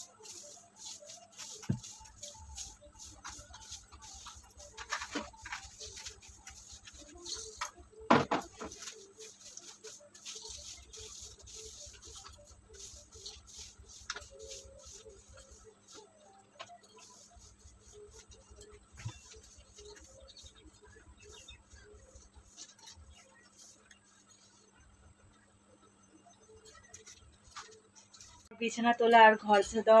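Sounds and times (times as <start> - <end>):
broom sweeping cement floor: 0.0 - 24.7, 26.6 - 28.5
knock: 8.1 - 8.6.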